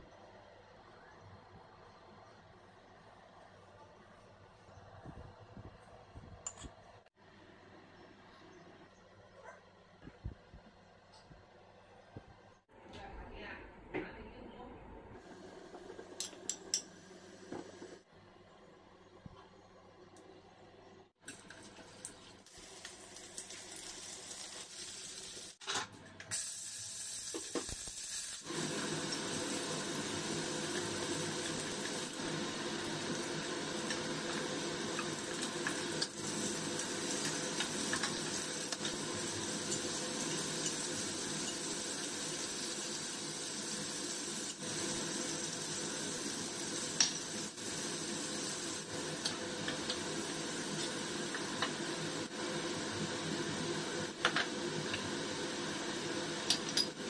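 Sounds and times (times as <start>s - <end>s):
vegetables sizzling in a wok: 21.3s - 57.0s.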